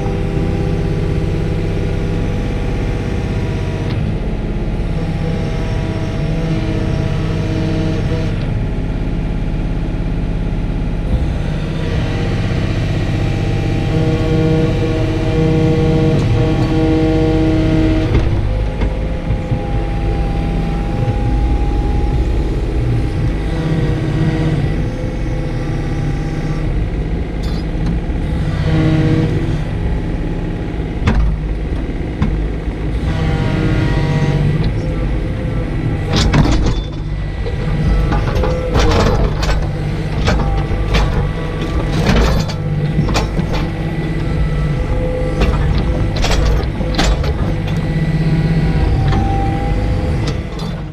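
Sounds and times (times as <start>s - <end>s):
excavator diesel engine: 0.0s - 50.9s
hydraulic whine: 11.0s - 50.9s
logs knocking and clunking: 17.7s - 22.6s, 30.9s - 33.0s, 36.0s - 48.1s.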